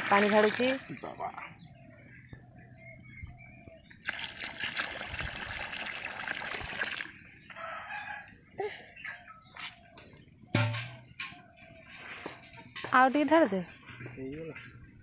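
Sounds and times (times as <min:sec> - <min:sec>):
water pouring into a pot: 0:00.0 - 0:00.8, 0:04.0 - 0:07.2
rooster crowing: 0:07.6 - 0:08.3.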